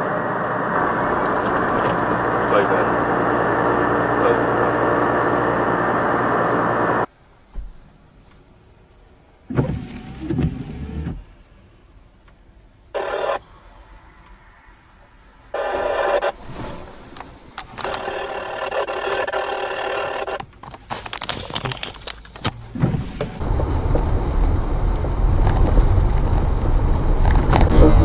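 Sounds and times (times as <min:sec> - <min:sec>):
car driving rumble: 0:00.0 - 0:07.1.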